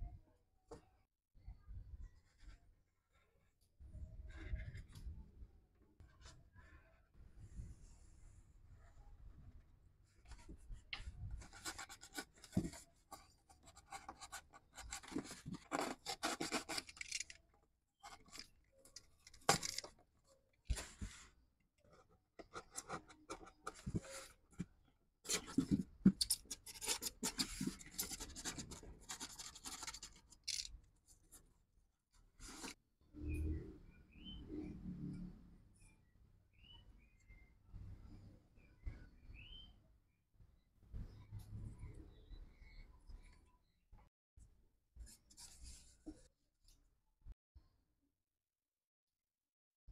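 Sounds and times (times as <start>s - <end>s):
pen scraping foam: 11.4s - 17.4s.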